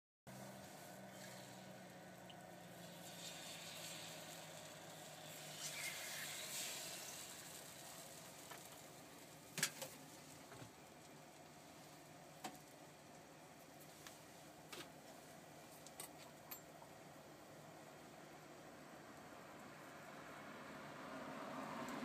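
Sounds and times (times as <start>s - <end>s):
batter sizzling in hot pan: 0.3s - 14.0s.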